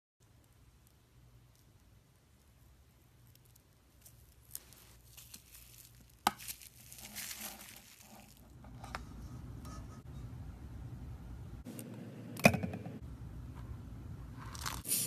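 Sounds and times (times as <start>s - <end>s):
slime crinkling and squishing: 0.8s - 8.6s.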